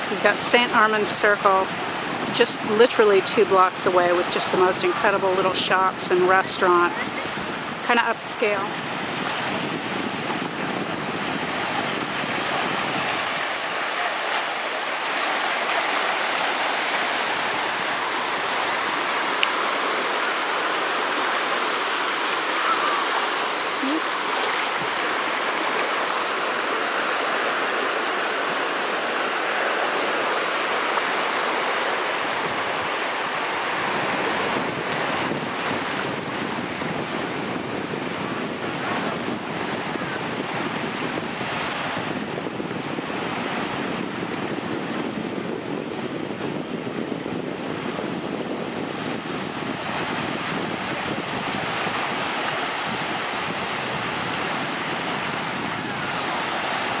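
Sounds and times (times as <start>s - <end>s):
waves washing in shallow surf: 0.0s - 57.0s
wind blowing on microphone: 0.0s - 57.0s.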